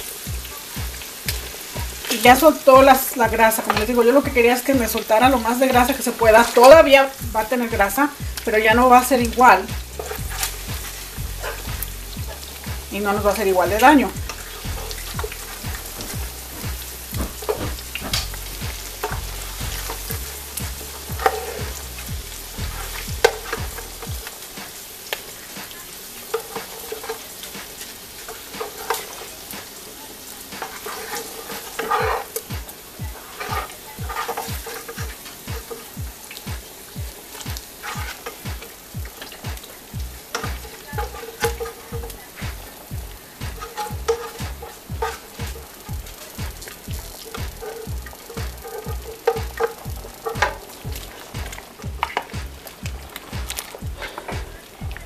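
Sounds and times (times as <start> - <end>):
steady sizzling hiss: 0.0 - 55.0
utensil knocking on metal pot: 37.4 - 42.7, 43.4 - 54.5.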